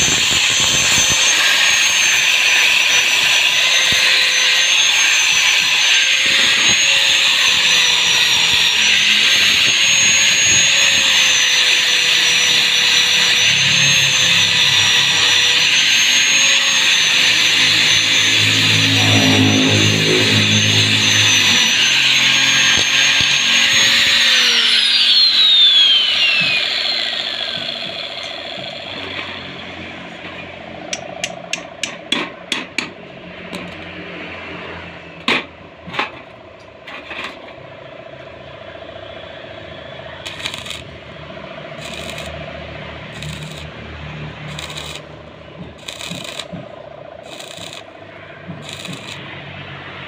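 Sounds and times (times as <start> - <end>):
arc welder crackling: 0.0 - 29.5, 40.2 - 50.0
angle grinder running: 0.0 - 32.0, 40.2 - 41.1, 41.7 - 50.0.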